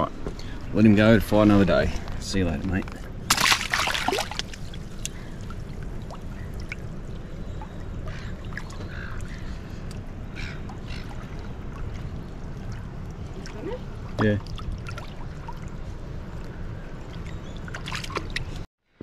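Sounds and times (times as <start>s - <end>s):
low water noise: 0.0s - 19.0s
fish splashing into water: 3.3s - 9.4s, 17.6s - 18.5s.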